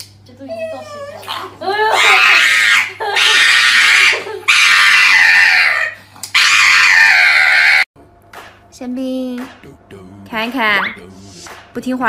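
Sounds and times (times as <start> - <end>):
small dog howling and screaming: 0.6 - 7.9.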